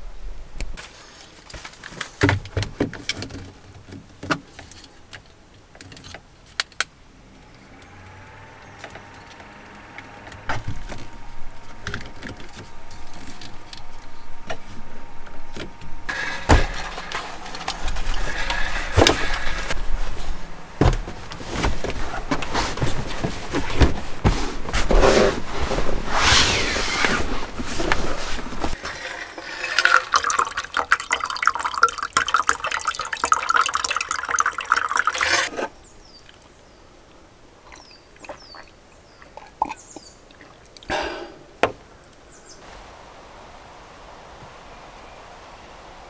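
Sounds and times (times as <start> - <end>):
rustling: 15.5 - 30.5.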